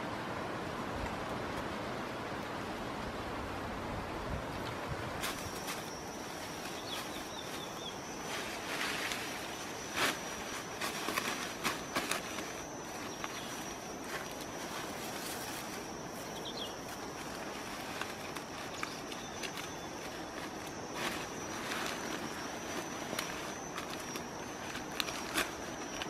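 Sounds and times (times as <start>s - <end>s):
dry leaves rustling: 5.2s - 26.0s
high-pitched insect whine: 5.2s - 26.0s.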